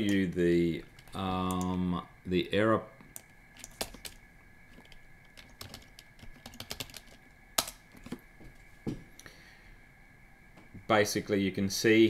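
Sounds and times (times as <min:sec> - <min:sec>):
computer keyboard typing: 0:00.0 - 0:01.8, 0:03.1 - 0:07.8.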